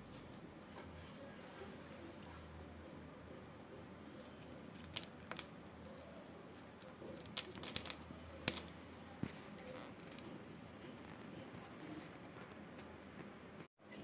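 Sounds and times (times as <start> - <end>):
clay shards clinking on floor: 4.2 - 10.2.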